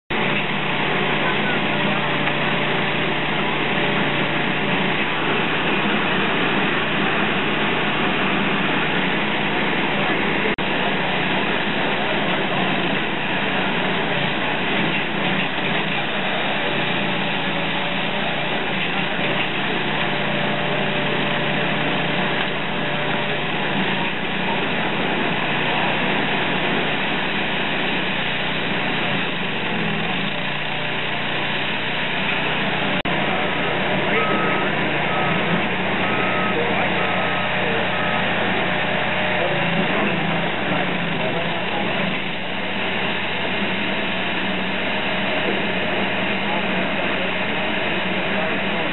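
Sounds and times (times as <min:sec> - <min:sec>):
firewood processor running: 0:00.1 - 0:48.9
reversing beeper: 0:32.9 - 0:42.2
faint whine: 0:32.9 - 0:42.7.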